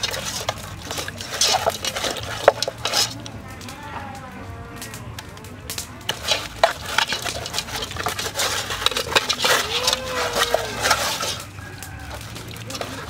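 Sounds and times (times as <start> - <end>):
metal spoon scraping pot: 0.0 - 3.4, 6.0 - 13.0
wet squelches of meat: 0.0 - 13.0.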